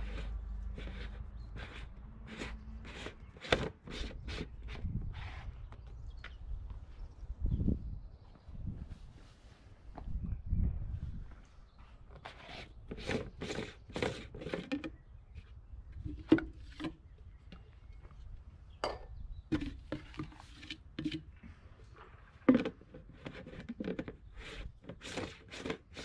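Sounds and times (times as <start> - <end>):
plastic cap scraping on tube: 0.0 - 5.6, 12.1 - 17.7, 19.5 - 21.4, 22.0 - 26.0.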